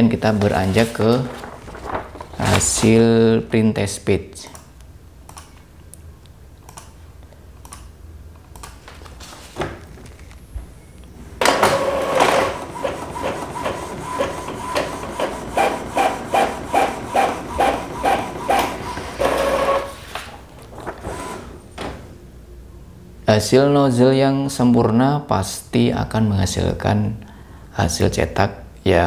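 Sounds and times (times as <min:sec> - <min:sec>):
inkjet printer whirring rhythmically: 0:11.5 - 0:20.0, 0:20.9 - 0:21.6.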